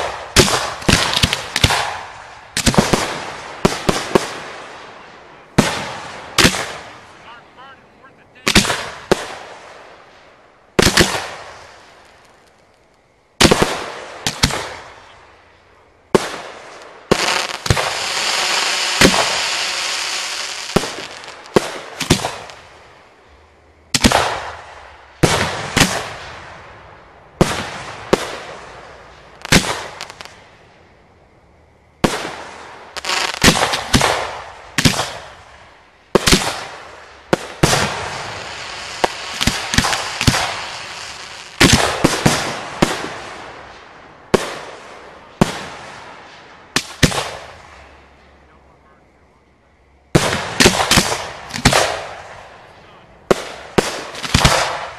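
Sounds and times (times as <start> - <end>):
firework bangs: 0.0 - 15.3, 16.1 - 23.3, 23.9 - 30.7, 32.0 - 48.5, 50.1 - 54.9
firework crackling hiss: 0.0 - 23.3, 27.4 - 30.9, 32.0 - 48.2.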